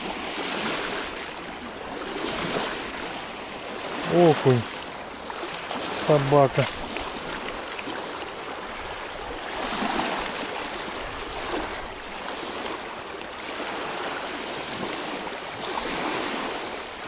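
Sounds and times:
water washing on shore: 0:00.0 - 0:17.0.

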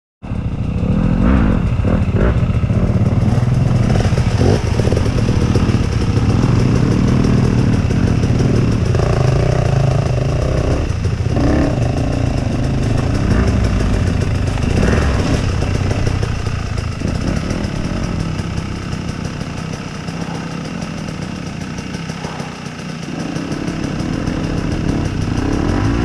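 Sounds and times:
motorcycle engine revving: 0:00.2 - 0:26.0.

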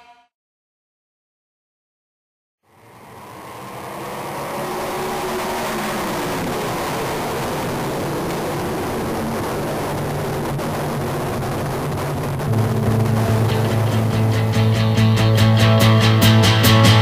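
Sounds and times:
racing car engines droning: 0:02.6 - 0:17.0
rock music with guitar: 0:12.4 - 0:17.0.

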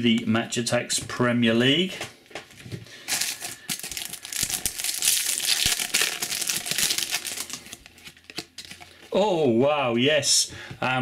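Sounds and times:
foil pack crinkling: 0:02.9 - 0:09.1.

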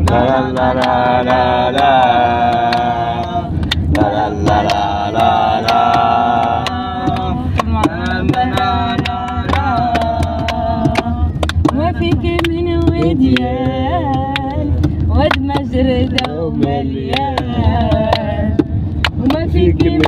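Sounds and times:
steady low rumble: 0:00.0 - 0:20.0
sharp taps: 0:05.6 - 0:20.0.

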